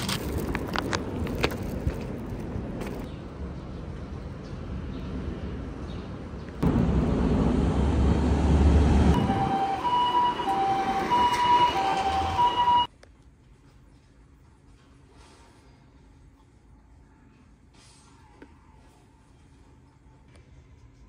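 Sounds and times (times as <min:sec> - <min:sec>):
loud street traffic: 0:00.0 - 0:12.9
two-tone ambulance siren: 0:09.0 - 0:12.9.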